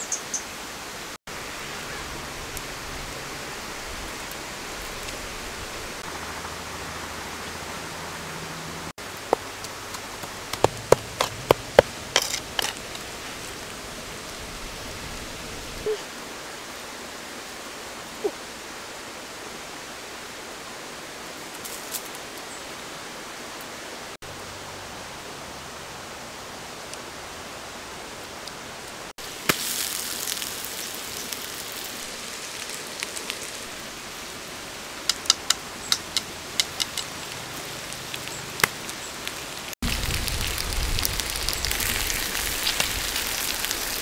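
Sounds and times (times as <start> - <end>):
steady outdoor hiss: 0.0 - 44.0
sharp snaps and cracks: 29.4 - 33.6, 35.1 - 44.0.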